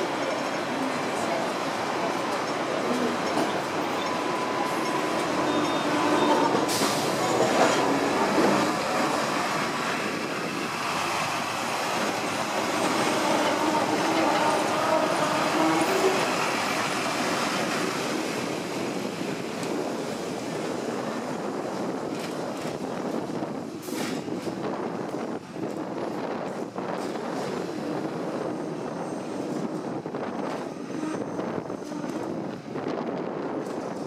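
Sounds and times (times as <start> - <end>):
tram wheel clack: 0.0 - 19.9
tram wheels rumbling on rails: 0.0 - 34.0.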